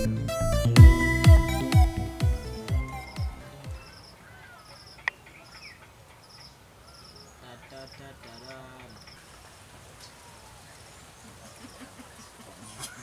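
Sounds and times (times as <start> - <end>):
insect chirping: 3.0 - 9.4.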